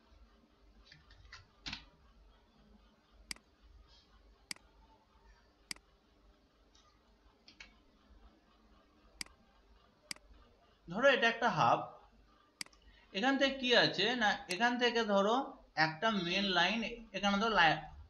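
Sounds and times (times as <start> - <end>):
computer mouse clicking: 0.8 - 2.1, 3.2 - 3.5, 5.7 - 5.9, 6.7 - 7.8, 9.2 - 10.5, 12.6 - 12.8.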